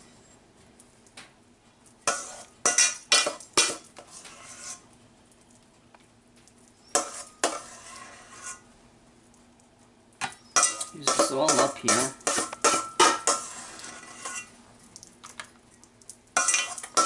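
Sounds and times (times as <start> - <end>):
metal spoon scraping foil pan: 2.0 - 4.9, 6.9 - 8.7, 10.5 - 14.6, 16.4 - 17.0.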